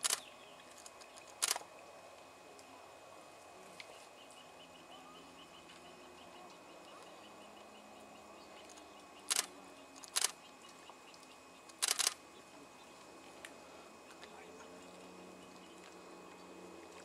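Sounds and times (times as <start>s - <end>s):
faint background noise: 0.0s - 17.0s
short sharp clicks: 0.9s - 1.6s, 9.3s - 10.3s, 11.7s - 12.2s.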